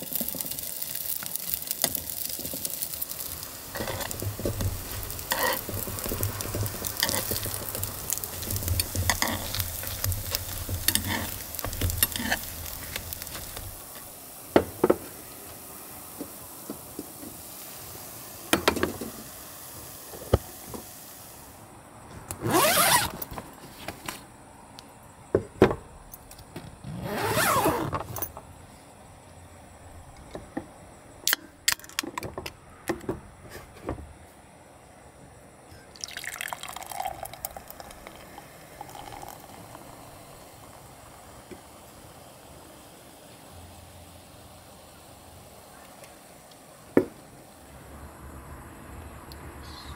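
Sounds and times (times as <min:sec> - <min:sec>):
beer pouring into glass: 0:35.9 - 0:41.0.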